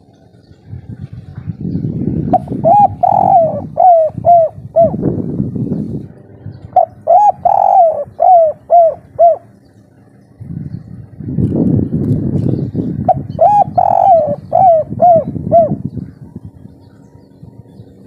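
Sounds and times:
dove cooing: 0:00.0 - 0:11.2, 0:12.6 - 0:18.0
low rumbling noise: 0:00.0 - 0:18.0.

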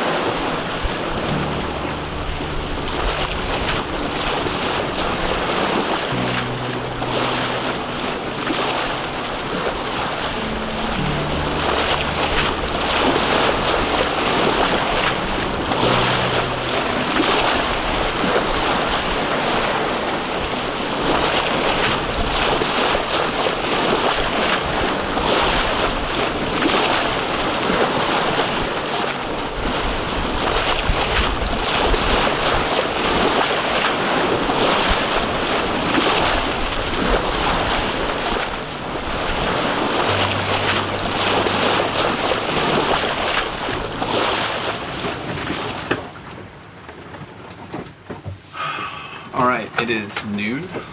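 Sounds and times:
water splashing along boat hull: 0:00.0 - 0:48.6
wind buffeting microphone: 0:07.3 - 0:46.8.

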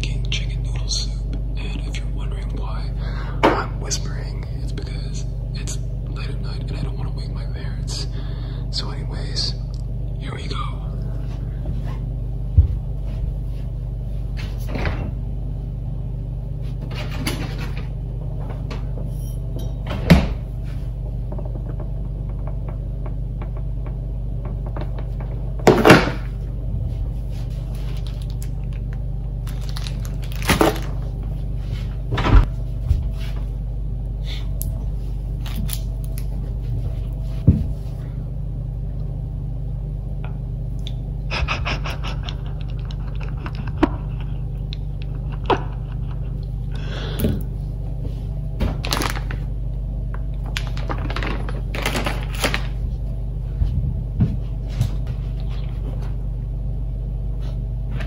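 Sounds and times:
low hum: 0:00.0 - 0:58.0
plastic packaging crinkling: 0:27.8 - 0:31.2, 0:48.8 - 0:49.5, 0:50.4 - 0:52.8.

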